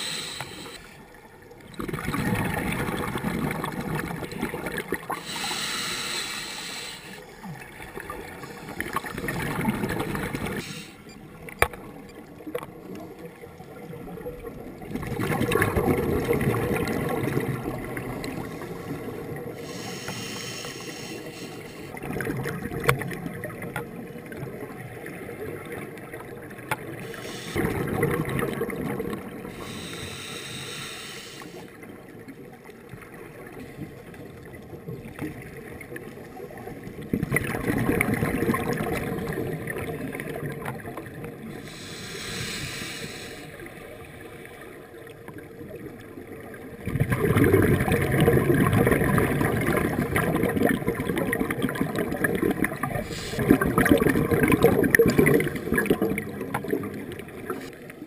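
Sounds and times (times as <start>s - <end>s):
regulator hissing inhalations: 0.0s - 0.9s, 5.2s - 7.3s, 10.6s - 11.1s, 19.6s - 21.9s, 27.1s - 27.8s, 29.5s - 31.7s, 41.6s - 43.7s, 53.1s - 53.5s
gurgling exhaled bubbles: 1.6s - 6.0s, 7.4s - 10.7s, 13.7s - 19.9s, 21.9s - 30.0s, 33.4s - 42.6s, 45.5s - 57.8s.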